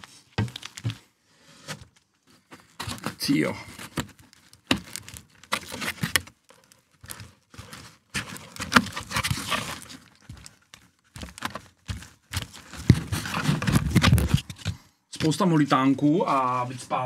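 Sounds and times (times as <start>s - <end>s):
foam rubbing and scraping: 2.7s - 10.5s, 11.2s - 14.8s.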